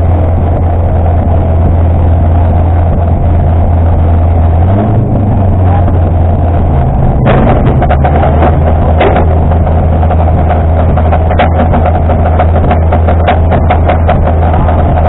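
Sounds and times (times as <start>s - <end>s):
car engine droning: 0.0s - 15.0s
gravel hitting car underside: 7.2s - 15.0s.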